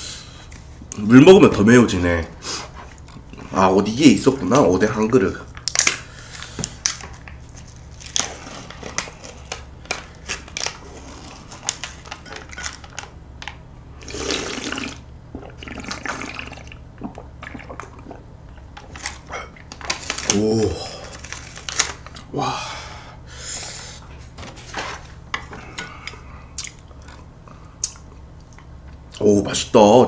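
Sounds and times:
slurping liquid: 14.0s - 19.3s.

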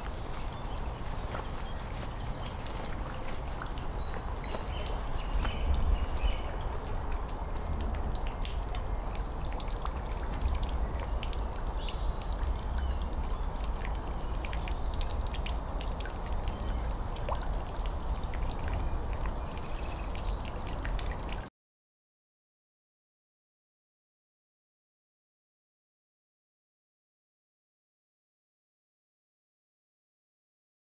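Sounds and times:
water dripping into a puddle: 0.0s - 21.5s.

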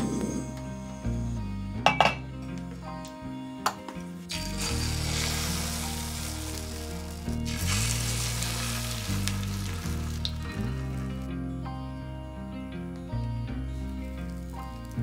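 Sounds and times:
background music with bass line: 0.0s - 15.0s
egg batter sizzling in a frying pan: 4.3s - 11.2s.

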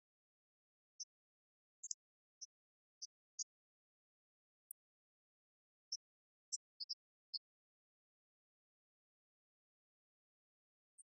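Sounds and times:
faint high-pitched ticks: 0.0s - 8.5s.

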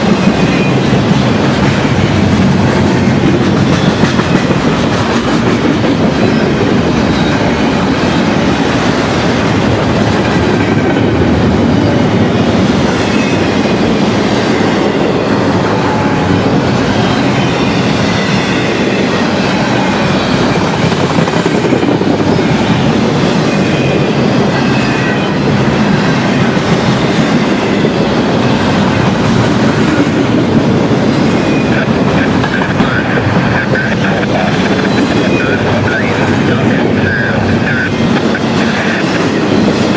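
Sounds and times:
train wheels rumbling on rails: 0.0s - 39.9s
high wheel squeals: 21.6s - 28.6s.

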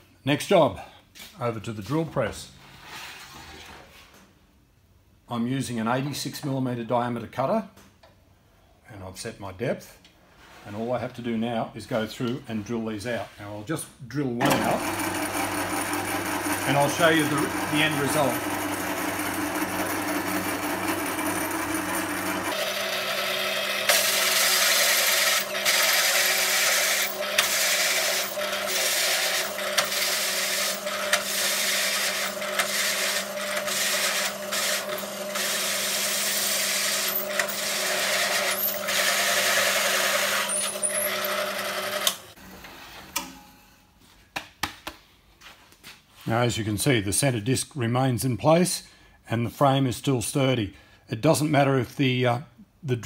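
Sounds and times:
drill press motor hum: 14.4s - 42.4s.

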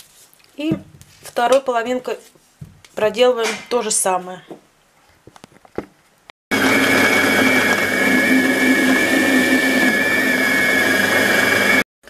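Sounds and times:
kitchen machine blade whine: 6.5s - 11.9s.

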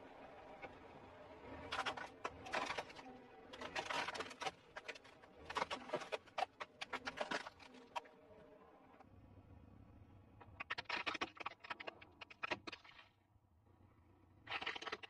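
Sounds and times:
plastic toys crunching under tyre: 1.7s - 8.0s, 14.5s - 15.0s.

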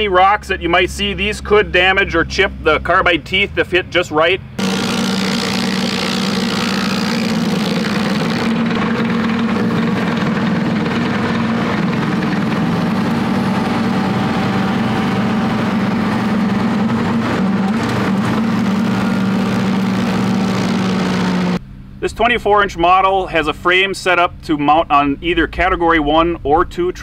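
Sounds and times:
tractor engine drone: 0.0s - 25.7s
stump grinder grinding wood: 4.6s - 21.6s.

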